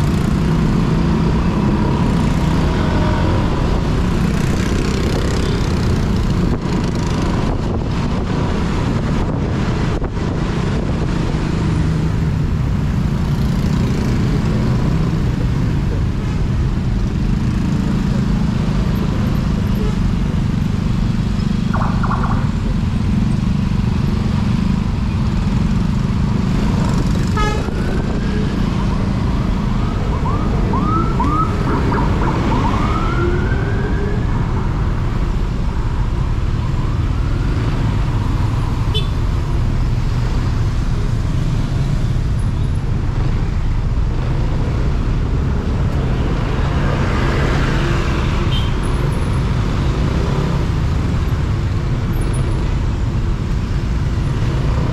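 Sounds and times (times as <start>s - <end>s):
motorcycle and traffic rumble: 0.0s - 54.9s
horn honk: 27.3s - 27.8s, 38.9s - 39.2s
siren whoops and wail: 29.8s - 34.5s.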